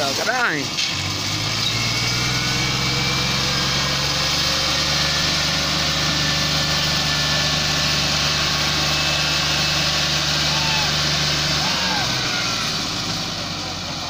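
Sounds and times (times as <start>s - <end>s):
tractor diesel engine under load: 0.0s - 14.0s.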